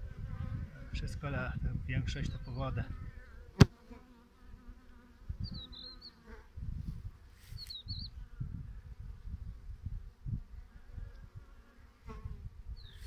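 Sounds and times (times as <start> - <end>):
honeybees buzzing: 3.2 - 8.5.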